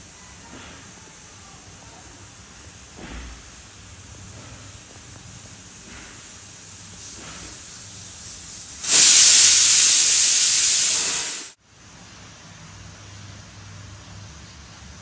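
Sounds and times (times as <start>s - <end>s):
pressure cooker steam hiss: 0.0s - 11.6s.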